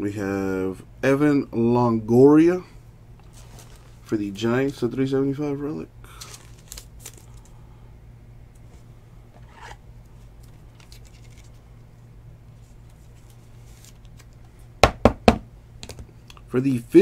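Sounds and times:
low steady hum: 0:00.0 - 0:17.0
plastic sleeve scratchy rubs: 0:03.2 - 0:04.9.

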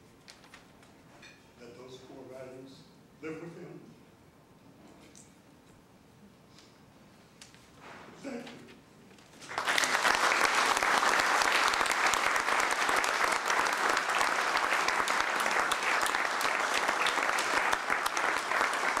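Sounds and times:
audience applauding: 0:09.4 - 0:19.0.

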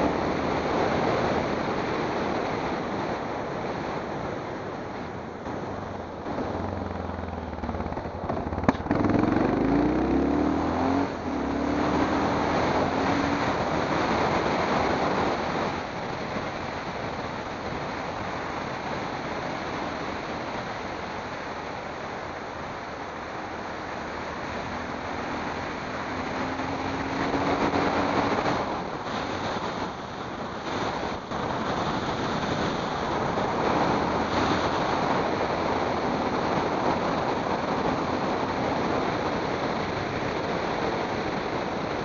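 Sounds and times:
vehicle road noise: 0:00.0 - 0:42.0
wind rushing over microphone: 0:00.0 - 0:42.0
engine revving: 0:05.5 - 0:15.5, 0:23.1 - 0:29.7.

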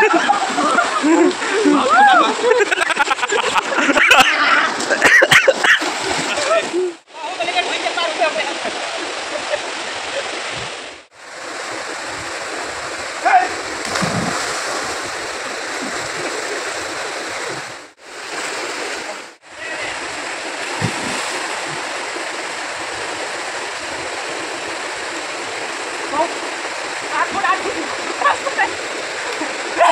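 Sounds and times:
stream rushing over rocks: 0:03.6 - 0:29.9.

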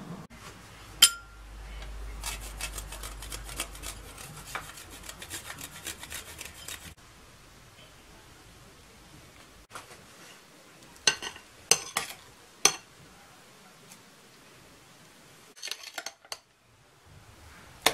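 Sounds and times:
sharp metallic clink: 0:01.0 - 0:01.4
chocolate rasping on grater: 0:02.2 - 0:07.0.

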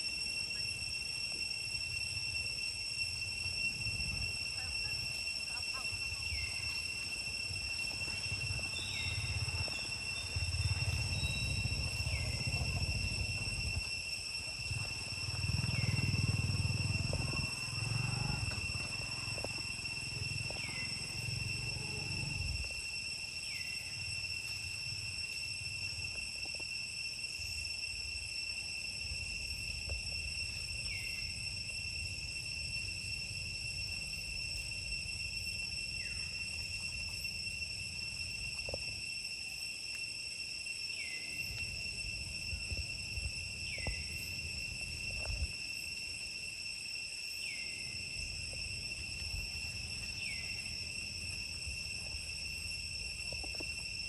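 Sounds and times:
insects droning: 0:00.0 - 0:54.0.

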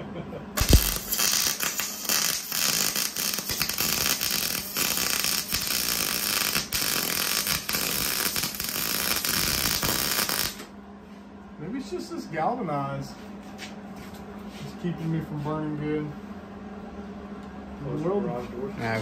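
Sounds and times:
arc welding crackle: 0:00.6 - 0:10.7
man talking: 0:11.6 - 0:13.2, 0:14.6 - 0:16.2, 0:17.8 - 0:19.0.

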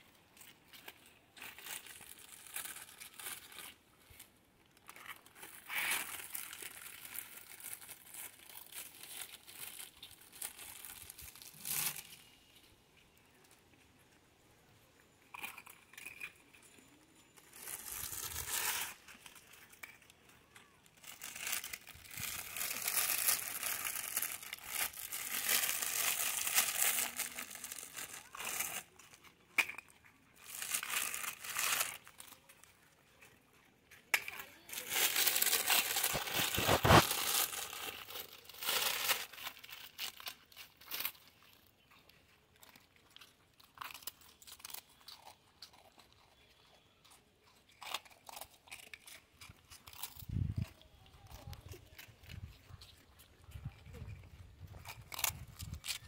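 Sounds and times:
plastic packet crinkling: 0:00.4 - 0:04.2, 0:04.8 - 0:12.3, 0:15.3 - 0:33.3, 0:34.1 - 0:46.1.

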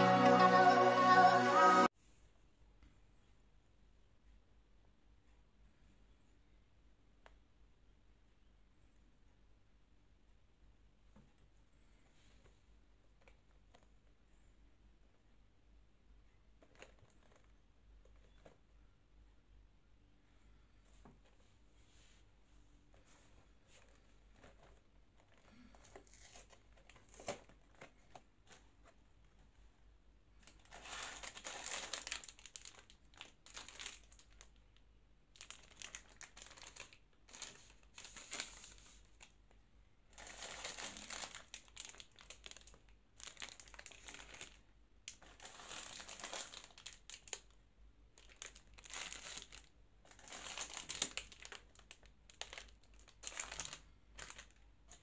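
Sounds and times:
plastic wrappers crinkling: 0:16.6 - 0:17.5, 0:23.7 - 0:29.5, 0:30.4 - 0:39.5, 0:40.1 - 0:55.0.

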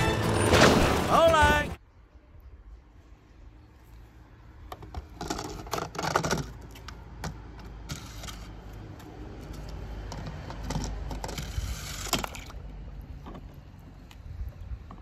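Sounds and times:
toy bulldozer clattering and scraping: 0:04.7 - 0:12.6.

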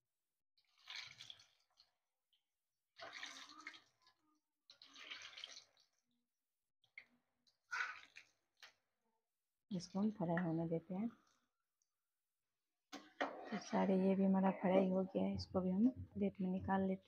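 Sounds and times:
oil sizzling and bubbling: 0:00.6 - 0:02.2, 0:03.0 - 0:06.2, 0:06.9 - 0:08.8.

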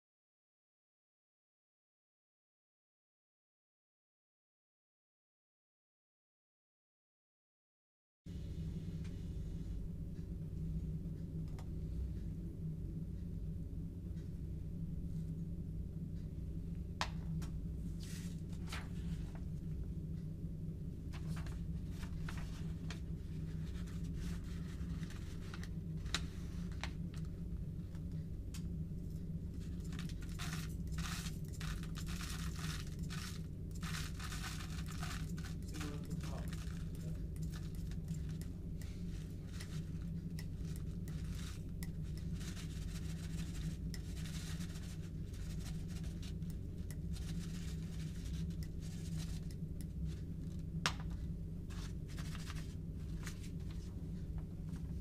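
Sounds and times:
low hum: 0:08.3 - 0:55.0
husks and paper rustling: 0:21.1 - 0:27.3, 0:29.7 - 0:38.4, 0:51.0 - 0:55.0.

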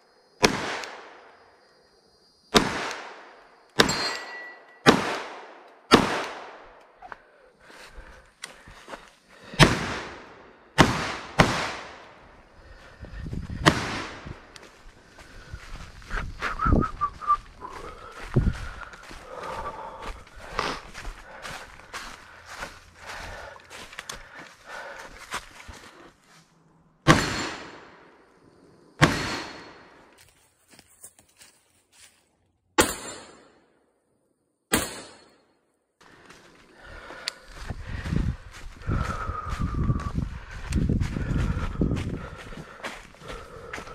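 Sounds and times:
gunshots with ringing echo: 0:00.4 - 0:01.4, 0:02.5 - 0:06.8, 0:09.6 - 0:12.2, 0:13.6 - 0:14.5, 0:27.0 - 0:28.2, 0:29.0 - 0:30.0, 0:32.8 - 0:33.8, 0:34.7 - 0:35.5.

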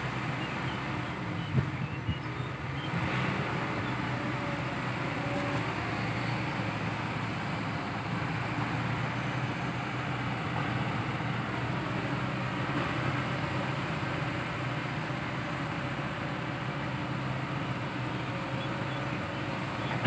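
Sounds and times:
excavator diesel engine running: 0:00.0 - 0:20.0.

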